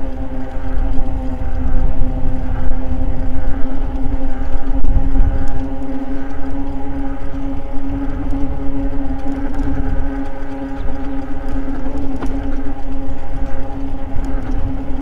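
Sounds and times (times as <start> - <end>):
electric bike hum: 0.0 - 15.0
wind rumble on microphone: 0.0 - 15.0.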